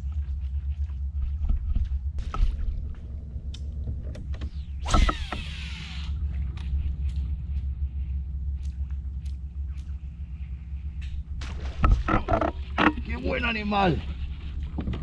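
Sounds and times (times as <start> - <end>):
steady low rumble: 0.0 - 15.0
fishing line whirring off reel: 4.4 - 7.3.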